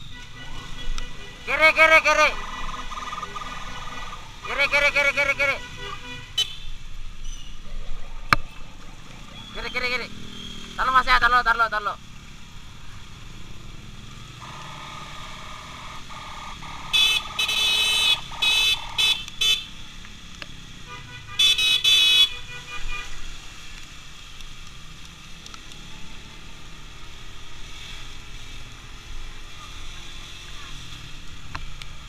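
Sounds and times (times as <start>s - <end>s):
traffic rumble: 0.0s - 32.0s
steady horn tone: 14.4s - 19.6s
short high-pitched horn blasts: 16.6s - 19.6s.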